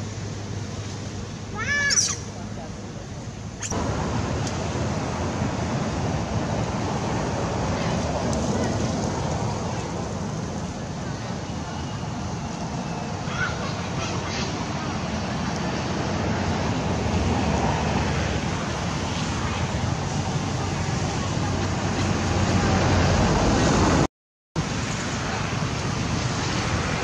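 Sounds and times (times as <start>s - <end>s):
low rumble and hiss: 0.0s - 22.8s.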